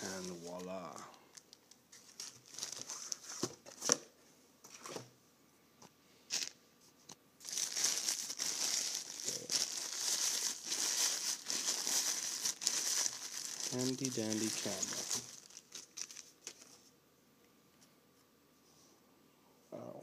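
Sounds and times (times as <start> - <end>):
plastic wrapping crinkling: 0.0 - 0.7, 1.3 - 3.9, 7.4 - 16.8.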